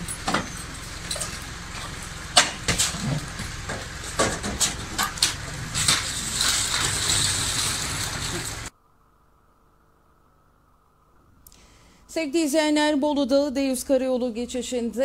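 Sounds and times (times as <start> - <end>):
metal knocks and clanks: 0.0 - 7.5
wheels rattling over pavement: 0.0 - 8.7.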